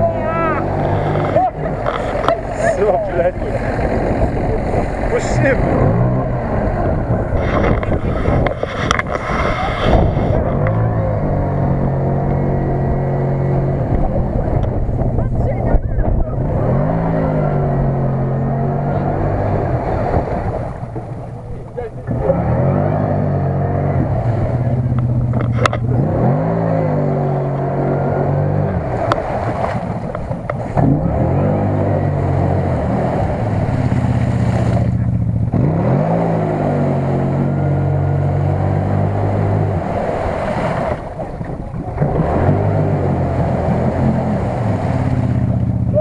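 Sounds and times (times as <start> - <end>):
mud and water splashing: 0.0 - 46.0
engine revving hard: 2.6 - 14.0, 16.4 - 20.5, 22.1 - 29.7, 30.8 - 41.0, 42.0 - 45.5.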